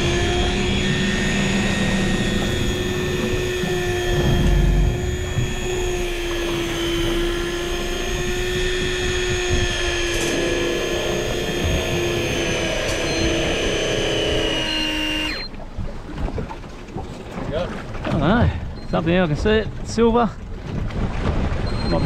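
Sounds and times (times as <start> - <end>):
fishing reel motor whine: 0.0 - 15.6.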